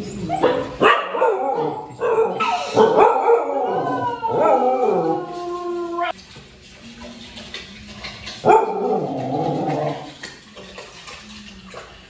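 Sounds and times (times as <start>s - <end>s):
dogs howling and yipping: 0.2s - 6.2s.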